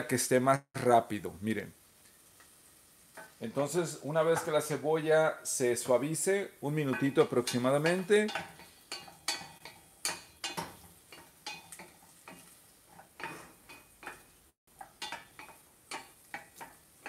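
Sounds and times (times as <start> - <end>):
onion sizzling: 0.0 - 17.0
wooden spoon scraping a saucepan: 6.7 - 17.0.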